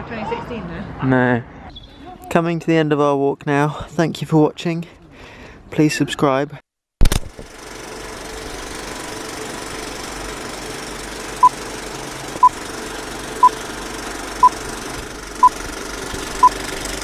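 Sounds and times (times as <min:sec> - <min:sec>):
film projector rattling: 0:07.1 - 0:17.0.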